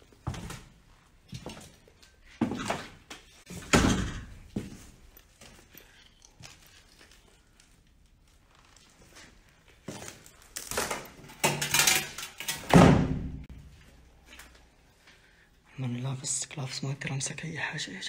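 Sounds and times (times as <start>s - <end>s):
rubble and broken tile clattering: 10.5s - 12.7s.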